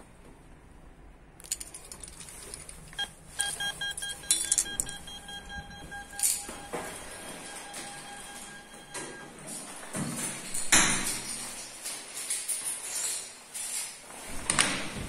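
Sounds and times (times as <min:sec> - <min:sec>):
intercom clicks: 0:03.0 - 0:09.4
rapidly pulsed beeping tone: 0:03.4 - 0:09.2.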